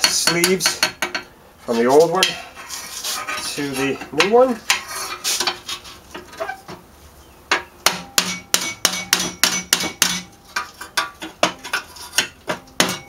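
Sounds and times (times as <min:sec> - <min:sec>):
tool tapping metal pipe: 0:00.0 - 0:01.3, 0:07.5 - 0:13.0.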